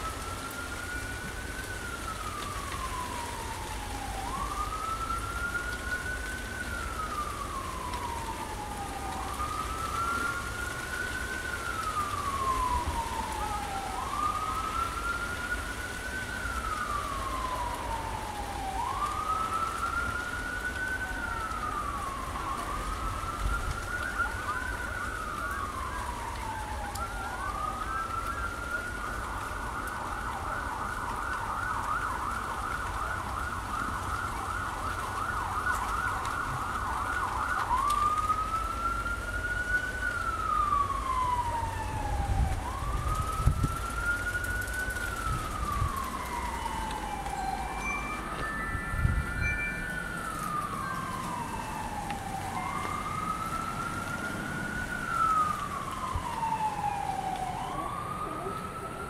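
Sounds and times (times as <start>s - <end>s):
siren wailing: 0.0s - 59.0s
wind noise on microphone: 40.0s - 57.7s.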